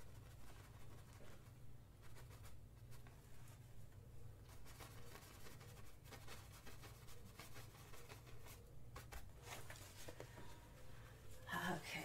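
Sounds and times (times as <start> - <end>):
low room hum: 0.0 - 12.0
paintbrush strokes on canvas: 4.4 - 11.7.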